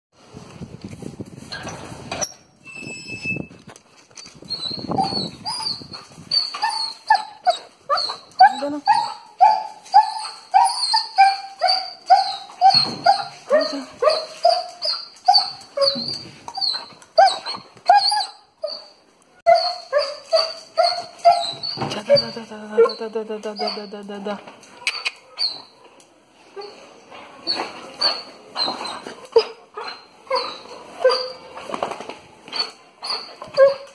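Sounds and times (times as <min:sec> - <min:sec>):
dog whining yelps: 0:04.5 - 0:24.0, 0:24.9 - 0:25.7, 0:27.5 - 0:31.7, 0:32.5 - 0:33.9.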